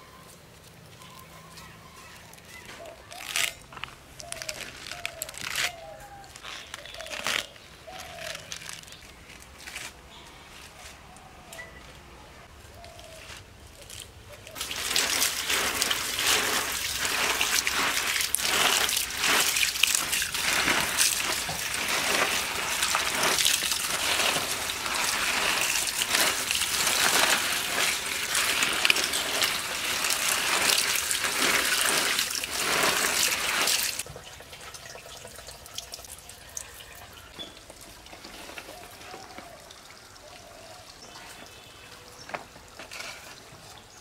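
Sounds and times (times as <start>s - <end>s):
hand swishing leaves in water: 14.5s - 34.0s
running water splashing on leaves: 14.5s - 41.1s.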